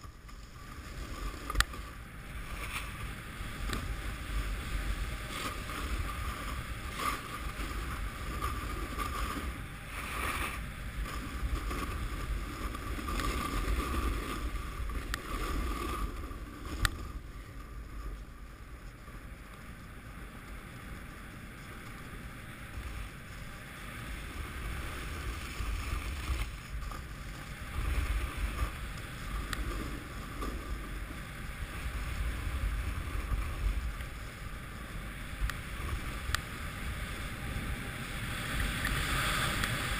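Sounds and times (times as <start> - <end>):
snowboard carving over snow: 0.0 - 39.9
wind buffeting microphone: 22.6 - 39.9.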